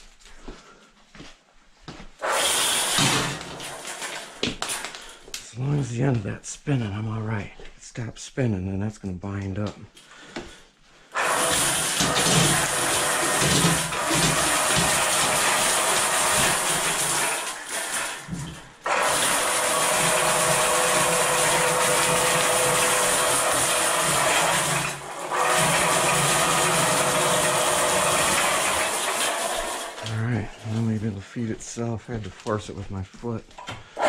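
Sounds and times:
drain cleaning machine motor running: 2.2s - 4.9s, 11.1s - 30.2s.

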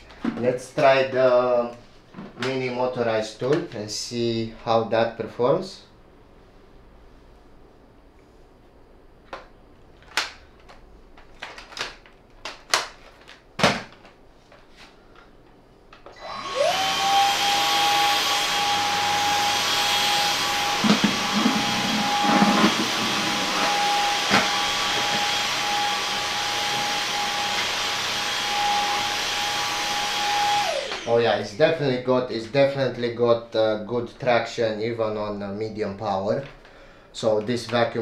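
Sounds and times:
vacuum motor whining: 16.1s - 31.5s.

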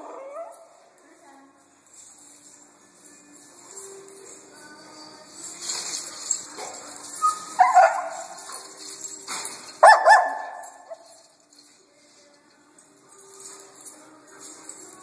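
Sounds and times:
dog barking: 7.6s - 8.3s, 9.8s - 11.0s.

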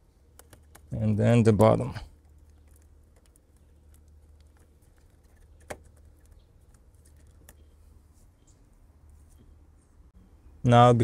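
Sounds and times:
low steady hum: 0.0s - 11.0s
rubber duct rubbing and clicking: 0.3s - 7.8s.

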